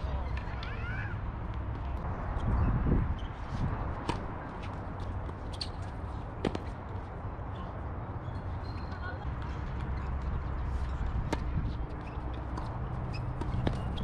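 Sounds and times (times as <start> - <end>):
tennis balls hit and bouncing: 4.0 - 7.1, 9.3 - 14.0.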